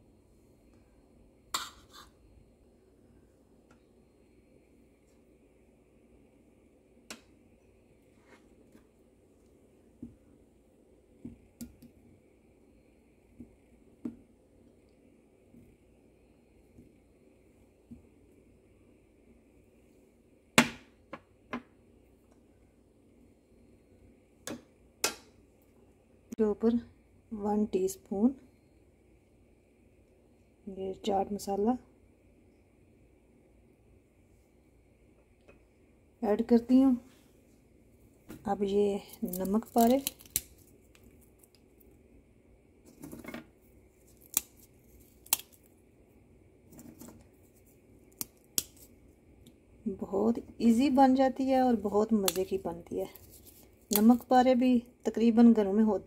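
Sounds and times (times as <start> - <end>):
crumbly rustle of fried snacks: 38.9 - 42.0
sharp crisp cracks: 39.1 - 41.6, 44.1 - 45.7.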